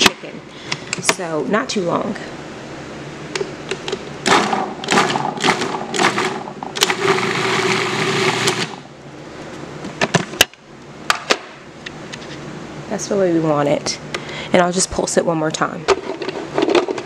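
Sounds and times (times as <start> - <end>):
food processor motor whirring: 4.3 - 8.8.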